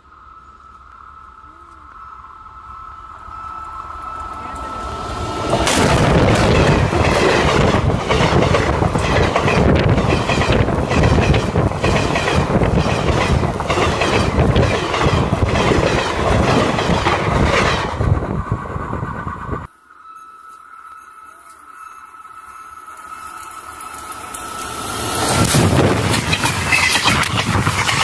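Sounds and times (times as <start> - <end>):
train wagons rumbling: 3.1 - 19.7, 21.4 - 28.0
wheels clattering over rails: 4.0 - 19.6, 22.9 - 28.0.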